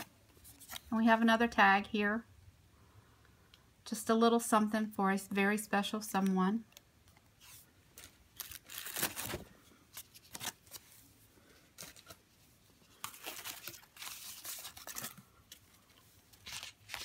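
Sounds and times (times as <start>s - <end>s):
wrapping paper rustling: 7.4s - 17.0s.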